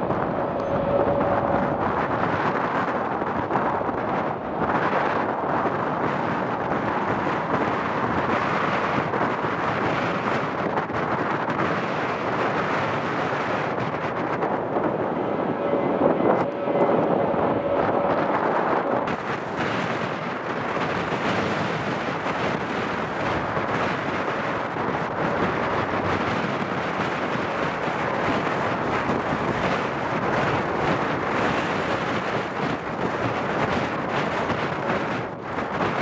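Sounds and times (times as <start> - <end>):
jet engines roaring: 0.0 - 9.6, 10.2 - 26.6
propeller plane engine droning: 0.0 - 36.0.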